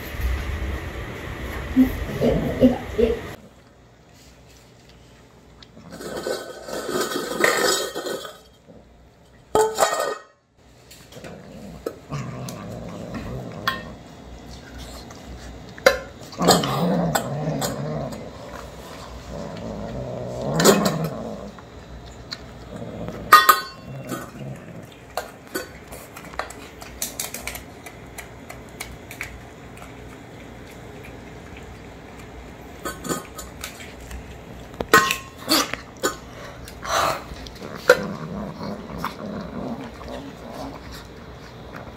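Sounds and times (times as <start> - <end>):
kittens chewing and lapping: 1.3 - 9.5, 10.6 - 41.9
clinks on metal bowls: 5.9 - 8.6, 9.5 - 10.3, 23.2 - 24.4, 34.8 - 36.2
kitten growling: 11.2 - 13.9, 16.3 - 21.8, 22.5 - 25.0, 36.8 - 41.9.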